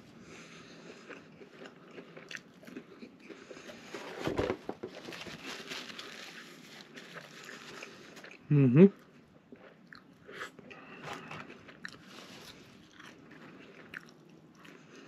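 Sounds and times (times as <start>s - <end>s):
chewing and mouth sounds: 0.3s - 3.9s, 7.1s - 15.0s.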